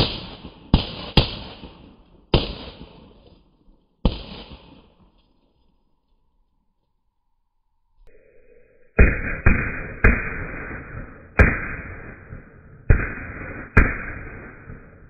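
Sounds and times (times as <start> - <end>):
firecrackers banging: 0.0 - 5.3.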